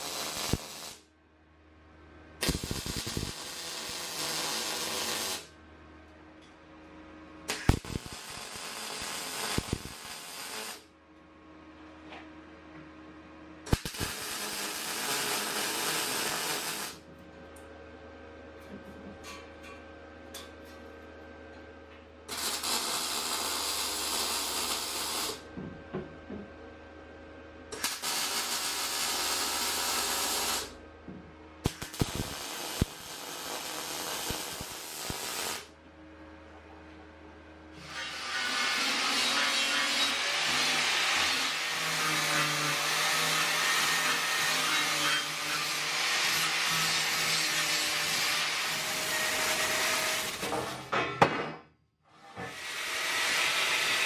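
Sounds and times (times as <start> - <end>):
welder crackling hiss: 0.0 - 1.0, 2.4 - 5.5, 7.5 - 10.8, 13.7 - 17.0, 22.3 - 25.4, 27.8 - 30.7, 31.6 - 35.7
welding arc pops: 0.0 - 1.0, 2.4 - 5.5, 7.5 - 10.8, 13.7 - 17.0, 27.7 - 30.7, 31.6 - 35.7.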